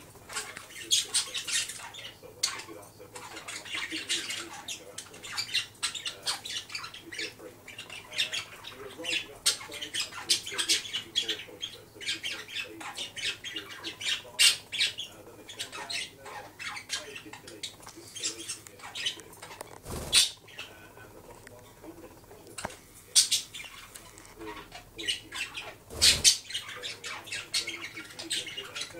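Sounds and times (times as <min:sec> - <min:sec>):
budgerigar chattering: 0:00.0 - 0:28.9
wings fluttering: 0:19.0 - 0:20.4, 0:25.7 - 0:26.5.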